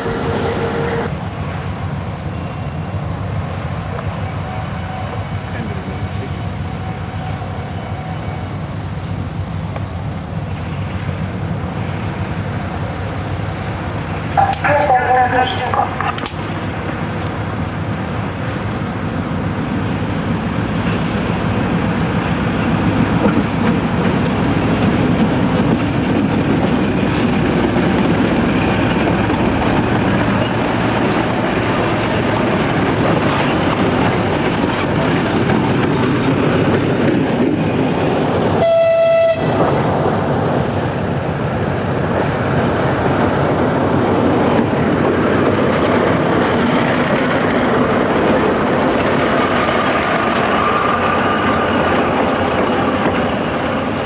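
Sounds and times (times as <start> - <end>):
locomotive horn blast: 0.0 - 1.1, 38.6 - 39.7
diesel locomotive passing: 0.0 - 54.0.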